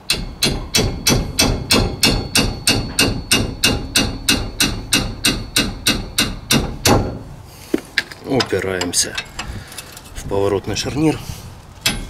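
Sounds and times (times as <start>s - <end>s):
hammer striking metal wrench: 0.0s - 7.2s.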